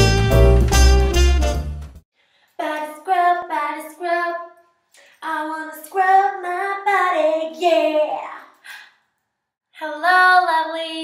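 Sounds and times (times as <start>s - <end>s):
jazzy saxophone music: 0.0s - 2.0s
woman singing unaccompanied: 5.2s - 8.4s, 9.8s - 11.0s.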